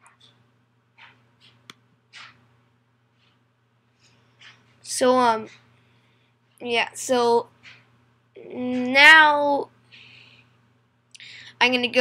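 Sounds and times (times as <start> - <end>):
room hum: 0.0 - 12.0.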